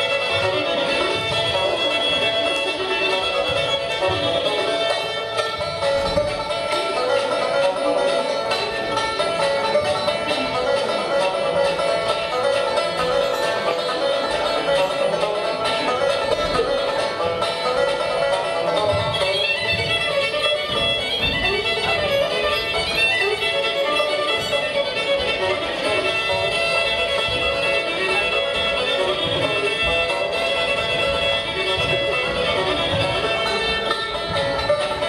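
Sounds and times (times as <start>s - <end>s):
fiddle playing bluegrass tune: 0.0s - 35.0s.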